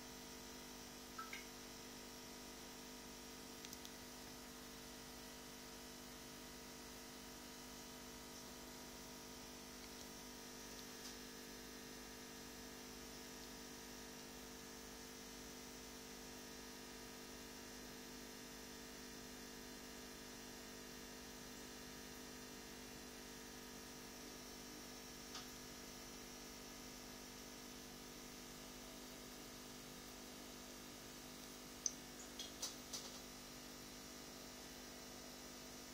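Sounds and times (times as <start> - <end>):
faint mains hum: 0.0 - 35.9
tiny tick: 3.6 - 4.0.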